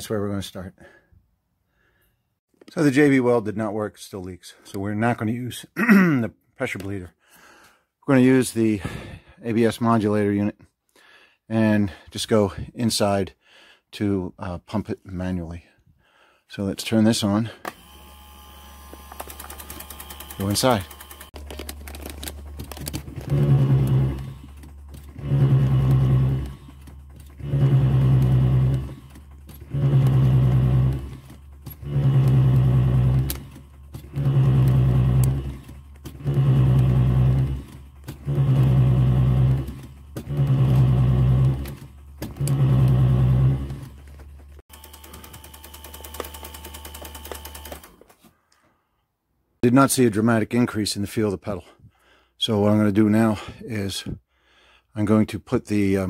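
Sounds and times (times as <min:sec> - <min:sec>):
hydraulic pump buzzing in pulses: 0:17.7 - 0:48.0.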